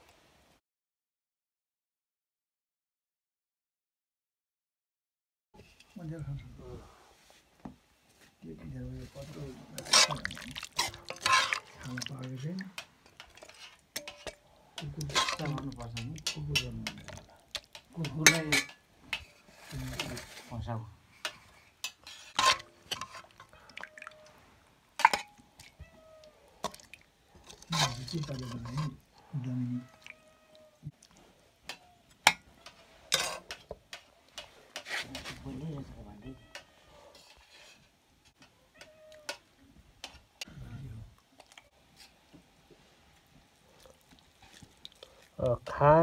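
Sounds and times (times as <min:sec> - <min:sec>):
gravy dripping: 0:09.4 - 0:19.9, 0:21.2 - 0:34.9, 0:41.1 - 0:46.0
utensils clinking on steel plate: 0:09.8 - 0:20.6, 0:21.2 - 0:23.4, 0:25.0 - 0:25.4, 0:27.4 - 0:29.0, 0:31.7 - 0:35.0.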